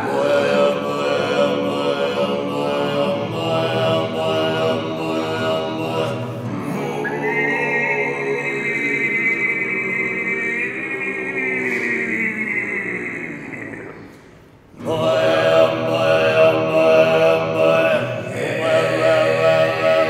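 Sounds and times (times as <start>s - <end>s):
nylon-string guitar: 0.0s - 20.0s
throat singing: 0.0s - 20.0s
high whistle-like overtone: 6.8s - 9.0s.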